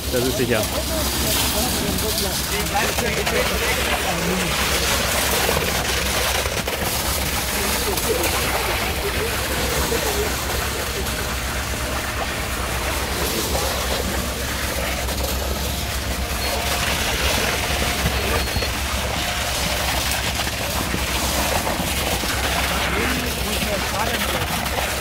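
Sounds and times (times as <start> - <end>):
heavy diesel machinery drone: 0.0 - 25.0.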